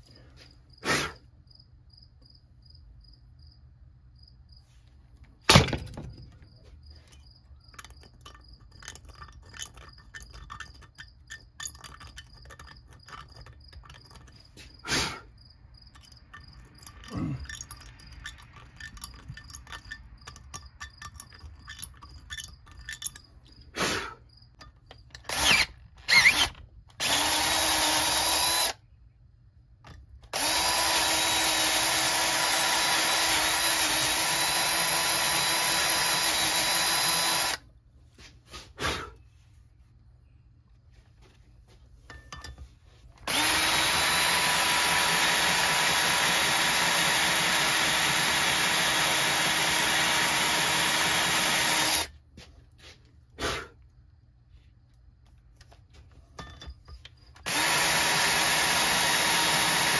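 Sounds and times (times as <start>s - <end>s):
cordless drill running: 25.3s - 28.8s, 30.3s - 37.7s, 43.2s - 52.1s, 57.4s - 59.9s.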